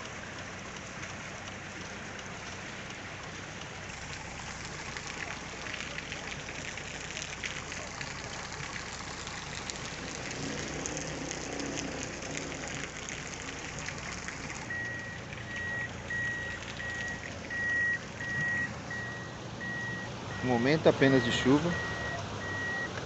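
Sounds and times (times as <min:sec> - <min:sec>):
traffic on wet street: 0:00.0 - 0:23.0
vehicle engine running low: 0:00.0 - 0:23.0
vehicle warning beeper: 0:14.7 - 0:22.9.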